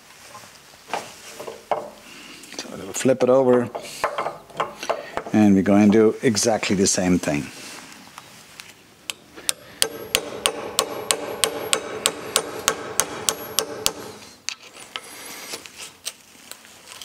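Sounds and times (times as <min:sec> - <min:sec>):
hammer tapping metal: 0:09.1 - 0:14.2.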